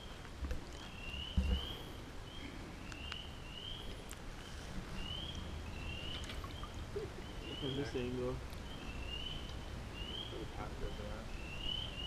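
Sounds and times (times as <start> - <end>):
frogs peeping: 0.0 - 12.0
low thump: 1.3 - 1.8.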